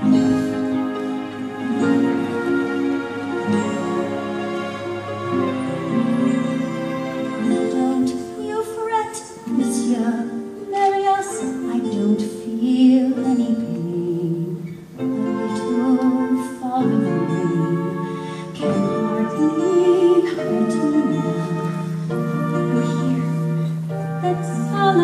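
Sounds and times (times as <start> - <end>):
instrumental accompaniment: 0.0 - 25.0
woman singing a ballad: 7.4 - 25.0.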